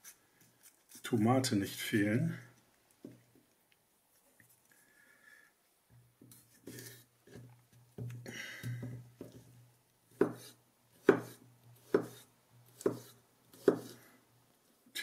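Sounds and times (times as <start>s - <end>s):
knife slicing tomato: 10.1s - 14.1s.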